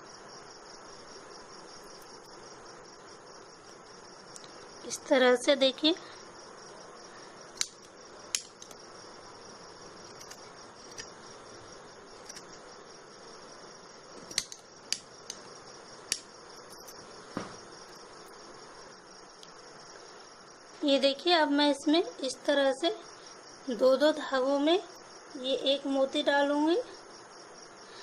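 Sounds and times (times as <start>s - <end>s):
insect chirring: 0.0s - 28.0s
scissors snipping cord: 7.6s - 8.8s, 10.1s - 11.2s, 12.2s - 12.6s, 14.2s - 15.5s.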